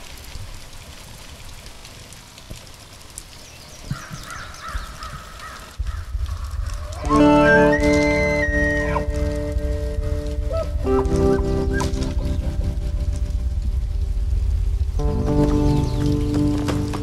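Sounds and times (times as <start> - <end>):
rain-like hiss: 0.0 - 17.0
bird calling: 3.5 - 9.4, 10.2 - 12.6
low rumble: 5.8 - 17.0
music with held notes: 7.0 - 17.0.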